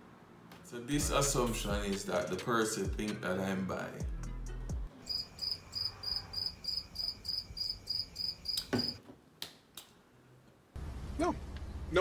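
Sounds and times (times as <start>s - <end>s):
cricket chirping: 5.0s - 9.0s.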